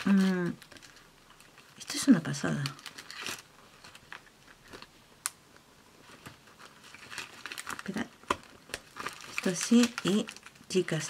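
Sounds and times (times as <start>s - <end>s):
card pages rustling and tapping: 2.6s - 4.9s, 6.0s - 10.5s.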